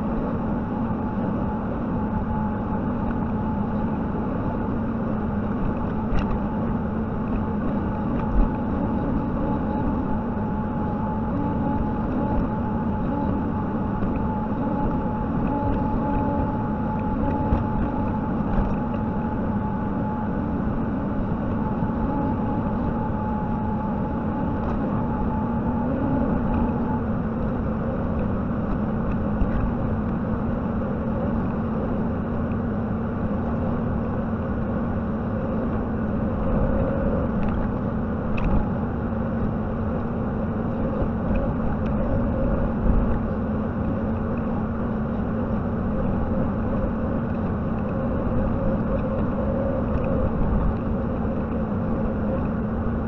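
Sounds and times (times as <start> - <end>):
steady high tone: 8.6 - 28.6.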